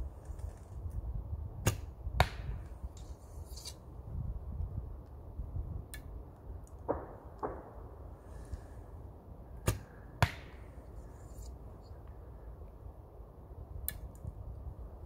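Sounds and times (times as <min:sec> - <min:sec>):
arrow striking target: 0:01.6 - 0:02.7, 0:09.6 - 0:10.6.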